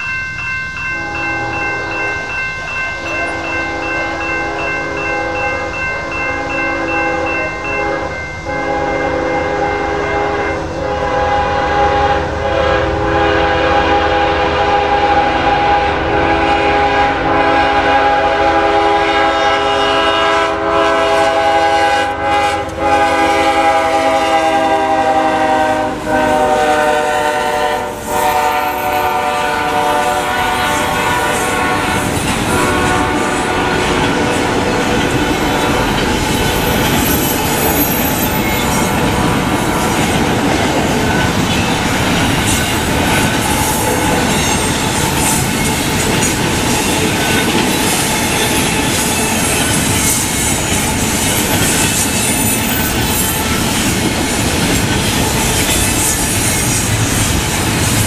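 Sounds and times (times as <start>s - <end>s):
crossing bell ringing: 0.0s - 58.0s
locomotive air horn blasts: 1.0s - 1.9s, 5.2s - 34.8s.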